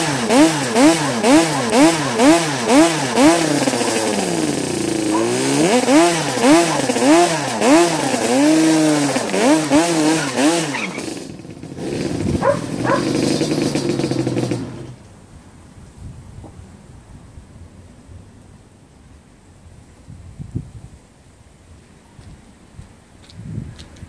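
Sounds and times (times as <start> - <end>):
two-stroke engine revving: 0.0 - 15.0
tyres spinning on asphalt: 0.0 - 15.0.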